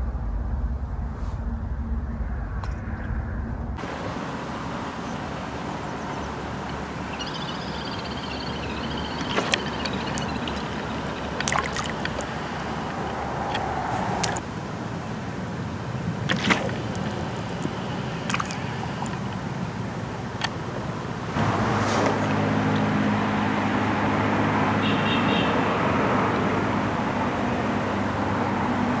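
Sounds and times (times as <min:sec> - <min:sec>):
outdoor background noise by water: 0:00.0 - 0:29.0
high warbling chirp: 0:04.2 - 0:14.0.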